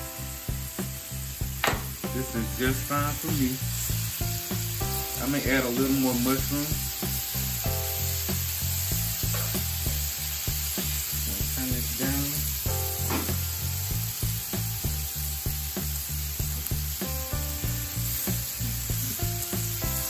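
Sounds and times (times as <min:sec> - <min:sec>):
background music with a beat: 0:00.0 - 0:20.0
food sizzling on a griddle: 0:00.0 - 0:20.0
metal tongs turning food: 0:01.8 - 0:13.6.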